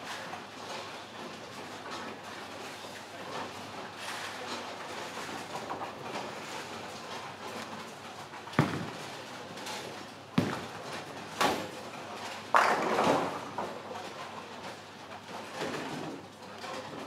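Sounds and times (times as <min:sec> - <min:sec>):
bowling pins clattering: 0:07.1 - 0:13.6
bowling balls knocking: 0:08.6 - 0:11.6.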